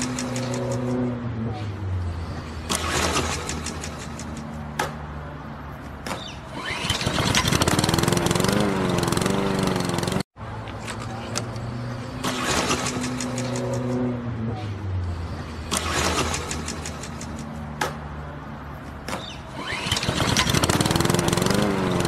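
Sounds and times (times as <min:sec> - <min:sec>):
small engine running: 0:06.6 - 0:10.2, 0:19.5 - 0:22.0.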